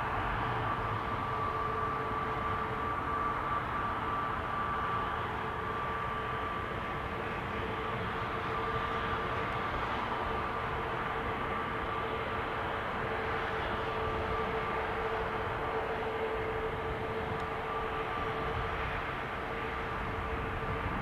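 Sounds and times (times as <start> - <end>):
jet engines humming and whining: 0.0 - 21.0.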